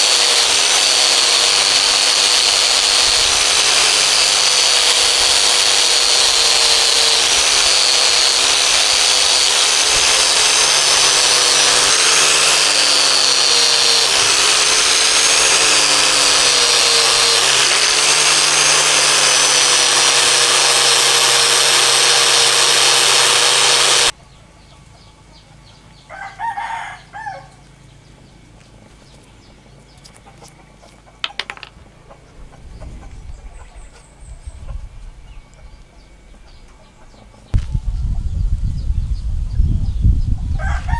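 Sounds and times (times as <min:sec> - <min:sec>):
buffing wheel whirring on steel: 0:00.0 - 0:24.2
rooster crowing: 0:26.1 - 0:27.6, 0:40.6 - 0:40.9.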